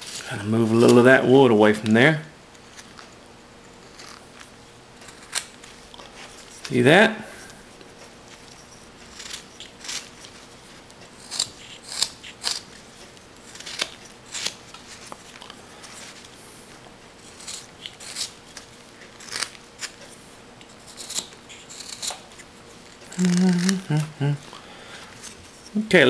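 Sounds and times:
knife cutting wood: 8.6s - 10.4s, 11.2s - 12.8s, 13.4s - 15.3s, 17.2s - 20.0s, 20.7s - 22.5s.

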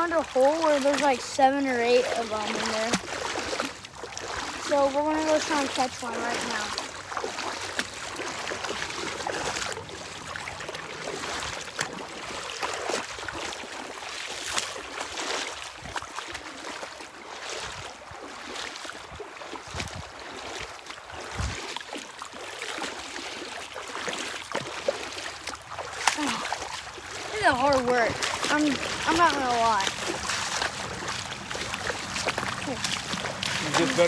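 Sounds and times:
feet wading and splashing: 0.0s - 34.0s
river water rushing over rocks: 22.9s - 34.0s.

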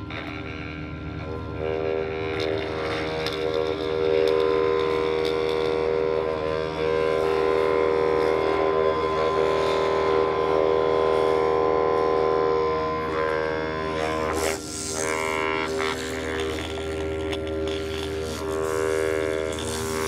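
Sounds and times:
droning film score: 0.0s - 20.0s.

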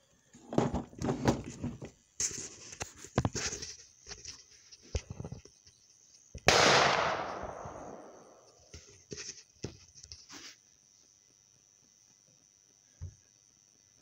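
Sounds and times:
gunshot with echo: 6.5s - 8.4s.

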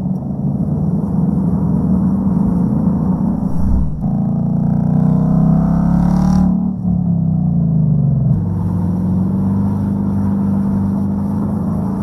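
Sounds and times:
car engine accelerating: 1.1s - 7.1s.

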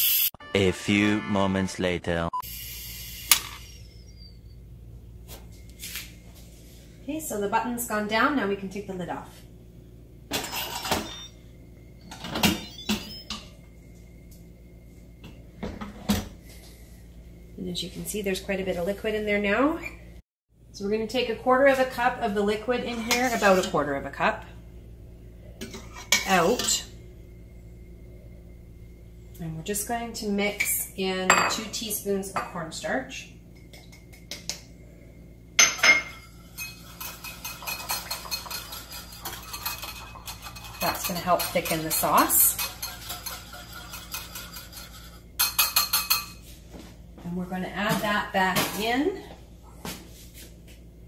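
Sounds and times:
wire whisk beating in bowl: 36.6s - 46.2s.

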